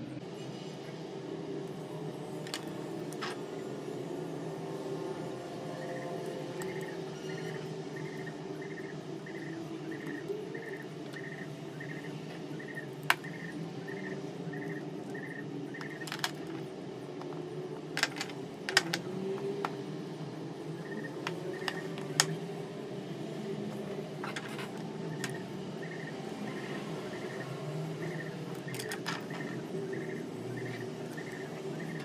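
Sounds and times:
metal craft tools clicking: 0:18.0 - 0:19.7, 0:28.7 - 0:29.5.

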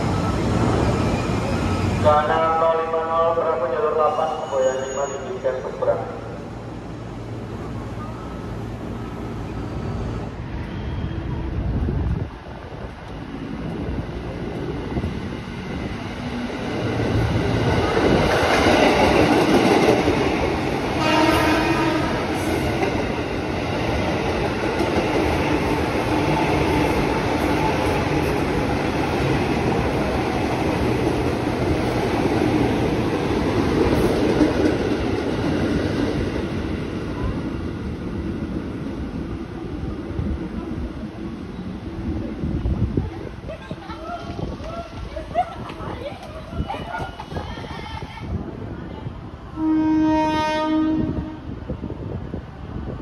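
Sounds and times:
train horn blast: 0:21.0 - 0:22.3, 0:49.5 - 0:51.5.

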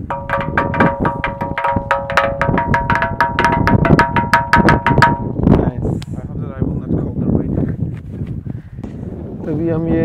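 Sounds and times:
quick percussive strikes: 0:00.0 - 0:05.4.

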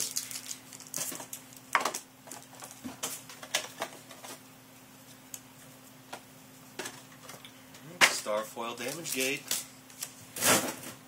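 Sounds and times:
trading cards rustling and clicking: 0:08.3 - 0:10.1.

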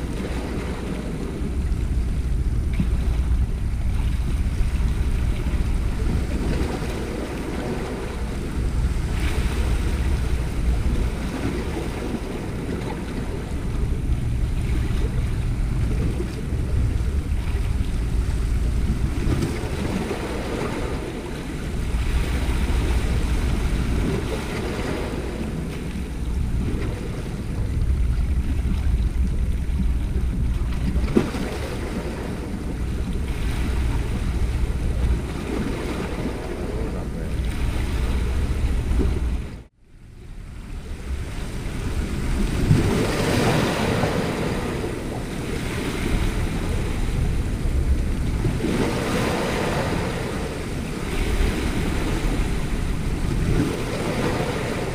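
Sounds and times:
sea waves washing against rocks: 0:00.0 - 0:39.8, 0:40.4 - 0:54.9
wind buffeting microphone: 0:00.0 - 0:54.9.

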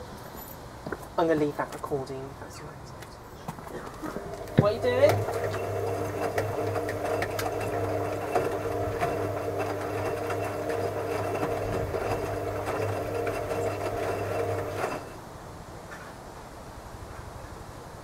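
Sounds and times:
laundry ticking and knocking: 0:03.9 - 0:15.0
washing machine motor running: 0:04.0 - 0:15.2.

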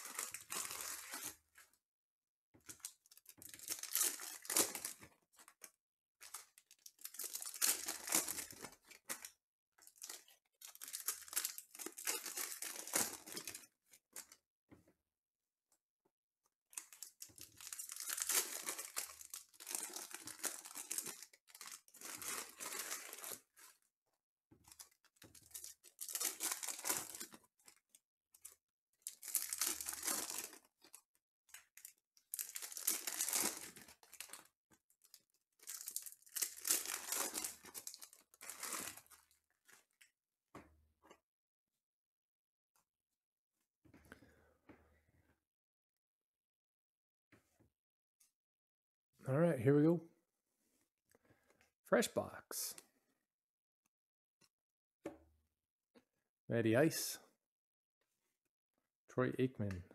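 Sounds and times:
card pack wrappers tearing: 0:00.0 - 0:01.4, 0:03.5 - 0:05.0, 0:06.9 - 0:09.2, 0:10.0 - 0:13.6, 0:16.8 - 0:23.4, 0:25.4 - 0:27.4, 0:29.1 - 0:30.7, 0:32.4 - 0:34.4, 0:35.6 - 0:39.2.

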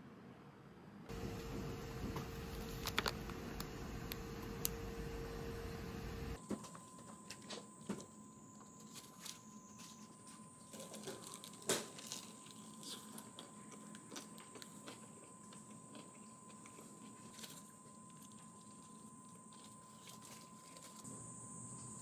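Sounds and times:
plastic wrapper rustling: 0:02.5 - 0:03.4, 0:08.7 - 0:21.1
faint steady tone: 0:03.4 - 0:22.0
person chewing a sandwich: 0:10.7 - 0:21.1.

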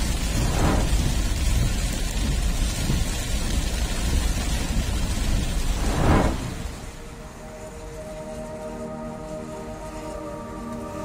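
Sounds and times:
deep thunder rumble: 0:00.0 - 0:07.4
heavy rain pouring: 0:00.0 - 0:11.0.

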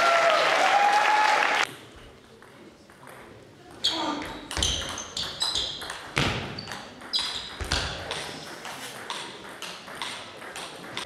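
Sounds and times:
table tennis ball bouncing on floor: 0:04.2 - 0:11.0.

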